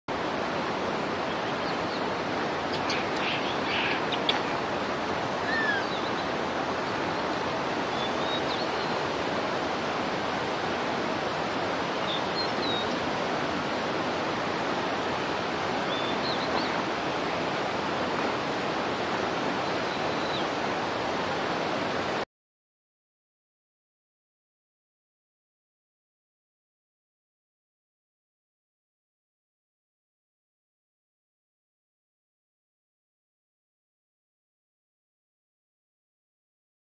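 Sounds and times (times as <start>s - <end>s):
running water: 0.1s - 22.2s.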